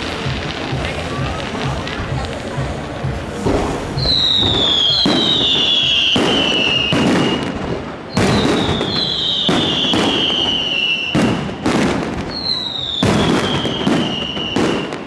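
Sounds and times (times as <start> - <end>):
fireworks bangs: 0.0 - 15.0
falling firework whistles: 3.5 - 15.0.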